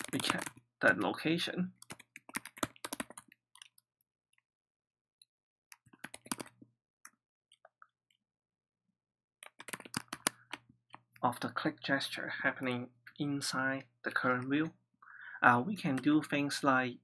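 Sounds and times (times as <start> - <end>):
computer keyboard typing: 0.0 - 1.2, 1.8 - 3.8, 5.7 - 6.6, 9.4 - 11.0.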